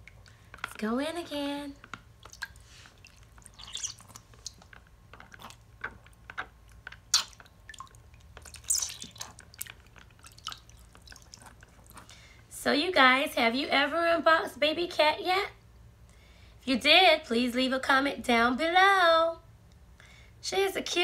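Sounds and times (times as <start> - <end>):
water sloshing in a tub: 0.0 - 12.4
water splashing and dripping: 2.0 - 11.8.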